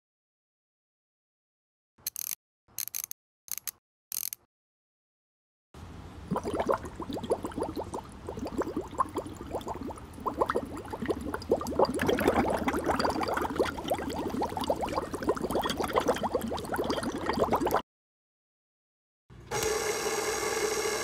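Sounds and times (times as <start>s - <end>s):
liquid bubbling and gurgling: 6.2s - 17.8s.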